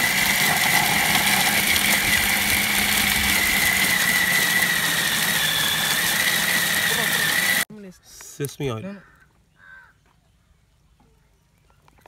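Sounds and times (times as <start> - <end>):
food processor grinding spices: 0.0 - 7.7.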